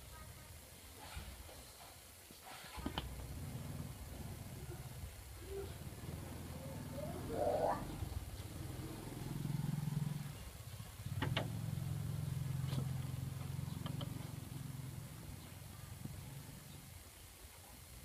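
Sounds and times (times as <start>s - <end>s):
low engine hum: 3.1s - 16.9s.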